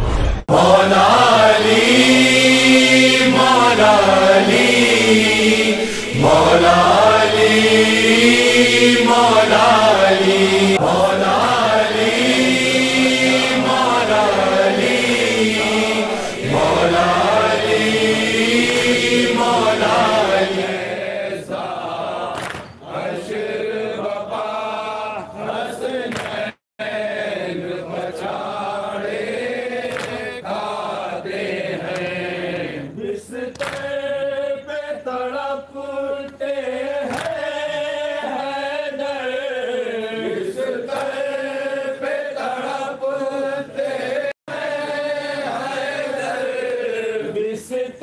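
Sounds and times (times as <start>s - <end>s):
person chanting a mourning lament: 0.5s - 22.3s.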